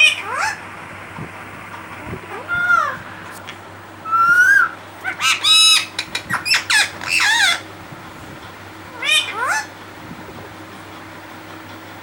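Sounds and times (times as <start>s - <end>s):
parakeet squawking and calling: 0.0s - 0.7s, 2.2s - 3.3s, 4.0s - 7.7s, 8.9s - 9.8s.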